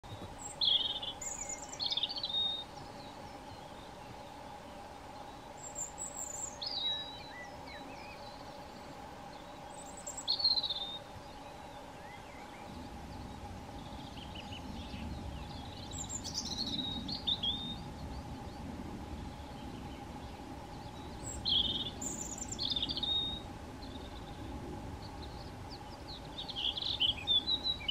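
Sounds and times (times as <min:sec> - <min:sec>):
robin singing: 0:00.0 - 0:27.9.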